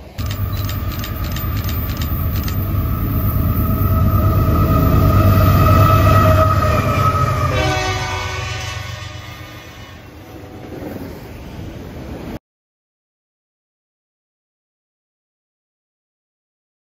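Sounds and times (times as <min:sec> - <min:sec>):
locomotive engine rumble: 0:00.0 - 0:12.2
rail cars rolling by: 0:00.0 - 0:12.4
locomotive horn: 0:00.2 - 0:11.1.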